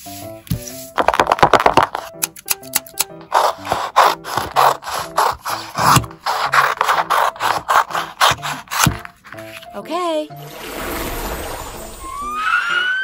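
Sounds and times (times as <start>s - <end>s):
light background music: 0.0s - 13.0s
rubbing strokes on paper: 3.3s - 8.6s.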